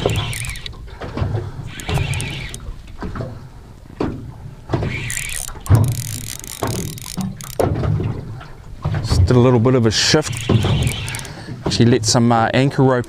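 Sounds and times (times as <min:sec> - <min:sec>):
fishing reel gears clicking: 0:00.0 - 0:00.8, 0:01.7 - 0:02.7, 0:04.9 - 0:07.7, 0:10.2 - 0:11.4.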